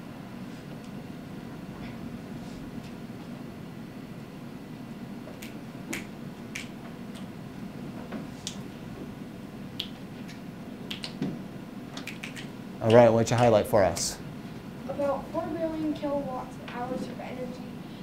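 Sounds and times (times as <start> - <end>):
low room hum: 0.0 - 18.0
fingers snapping: 5.3 - 7.3, 8.4 - 8.6, 9.7 - 11.3, 12.0 - 13.0.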